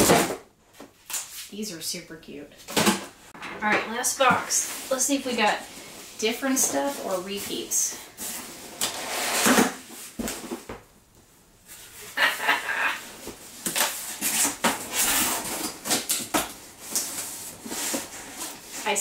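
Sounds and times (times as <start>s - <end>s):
packaging rustling and knocking: 13.2s - 18.8s.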